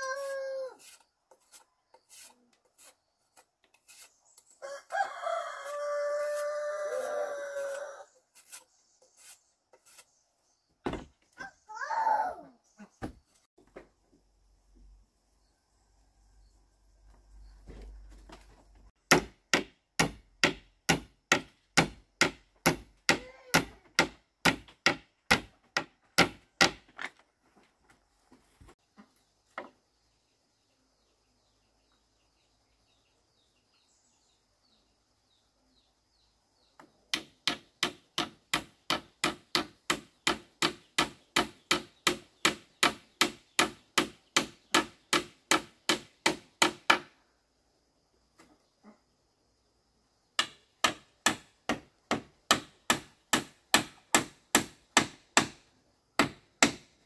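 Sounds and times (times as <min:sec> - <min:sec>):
hand tool striking wood: 0:19.0 - 0:27.1, 0:37.1 - 0:47.1, 0:50.4 - 0:55.6, 0:56.2 - 0:56.9.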